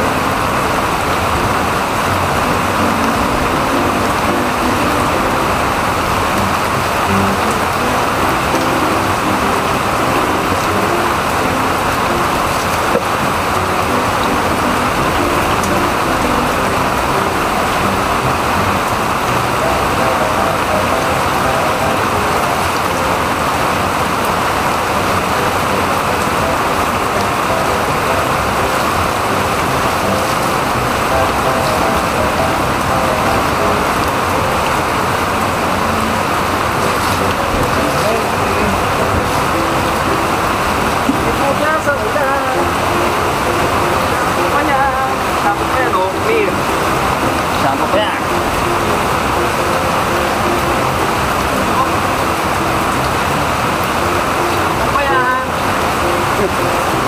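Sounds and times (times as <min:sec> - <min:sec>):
heavy rain on concrete and roof: 0:00.0 - 0:57.0.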